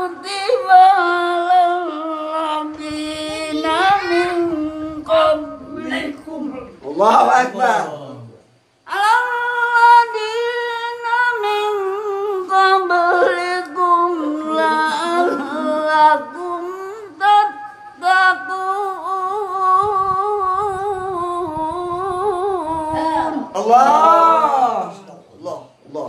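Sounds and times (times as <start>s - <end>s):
man reciting through a microphone: 3.1s - 8.3s, 13.0s - 16.4s.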